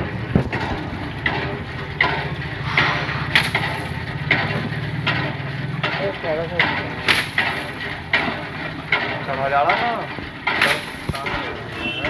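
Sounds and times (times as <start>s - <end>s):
engine humming: 0.0s - 12.0s
short sharp noisy sounds: 2.6s - 4.2s.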